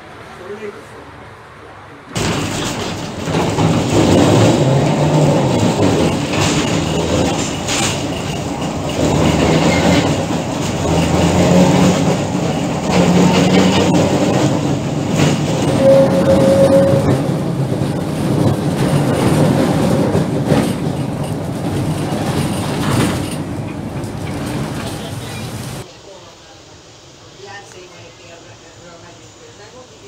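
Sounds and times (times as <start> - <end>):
tram wheels rumbling on rails: 2.0 - 25.9.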